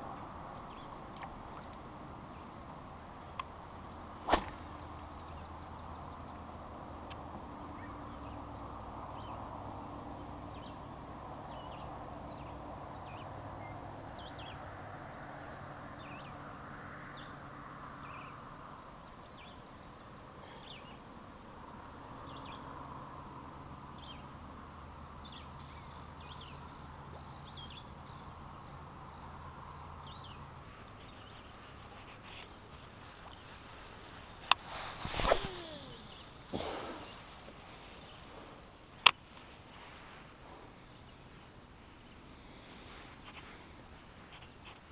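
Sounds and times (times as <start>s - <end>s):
soft steady hiss: 0.0s - 44.9s
birds chirping: 0.5s - 2.7s, 19.2s - 21.1s, 25.1s - 38.4s.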